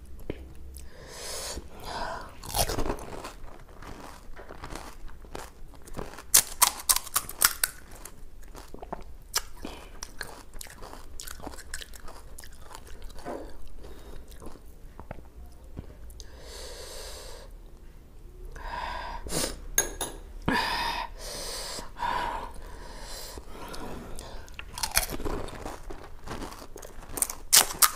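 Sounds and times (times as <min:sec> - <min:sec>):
chewing: 0:02.3 - 0:16.3, 0:23.3 - 0:27.9
crisp shells crunching: 0:02.4 - 0:08.8, 0:24.5 - 0:27.9.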